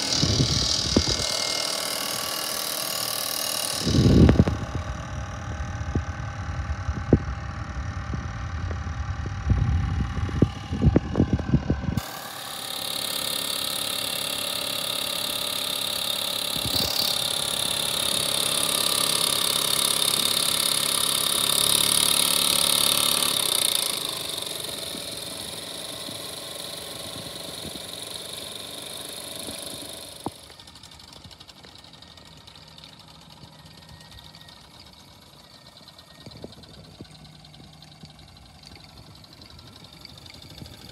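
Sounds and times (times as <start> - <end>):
low buffeting rumble: 0.0 - 1.4, 3.7 - 12.0
model steam engines clattering: 12.0 - 40.9.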